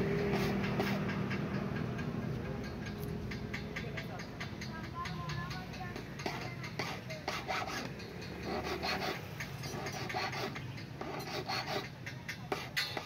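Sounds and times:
hand file rasping over metal: 0.0s - 2.1s, 5.6s - 13.0s.

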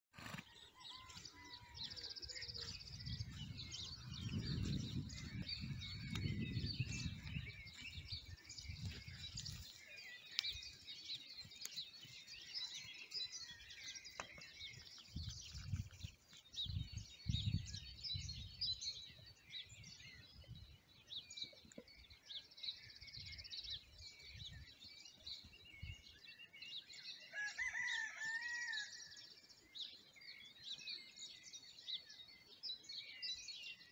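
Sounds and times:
small birds chirping: 0.2s - 28.1s, 29.3s - 33.9s
rooster crowing: 27.3s - 28.9s.

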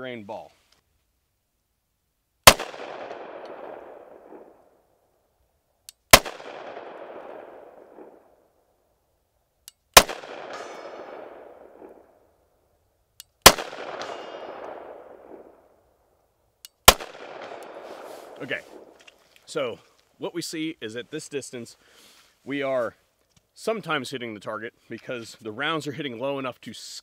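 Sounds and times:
pistol shots with echo: 2.4s - 4.7s, 6.1s - 8.4s, 10.0s - 12.2s, 13.4s - 15.6s, 16.8s - 18.9s
steel target ringing: 10.4s - 11.1s, 13.9s - 14.7s.

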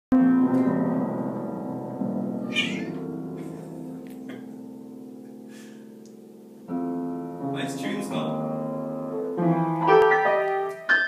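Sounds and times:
piano notes: 0.1s - 11.0s
kitten meowing: 2.4s - 3.0s.

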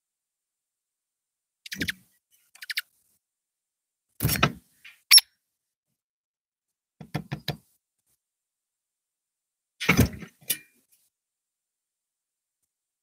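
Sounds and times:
bird chirp: 1.6s - 2.9s, 4.8s - 5.3s.

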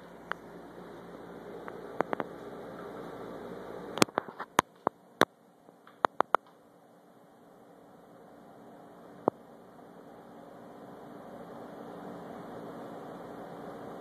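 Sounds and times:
low steady hum: 0.0s - 14.0s
sharp clicks and taps: 4.0s - 6.6s.

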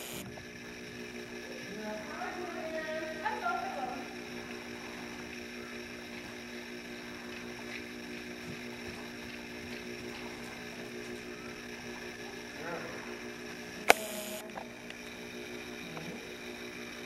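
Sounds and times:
even hiss: 0.0s - 0.3s
mechanical hum: 0.0s - 17.0s.

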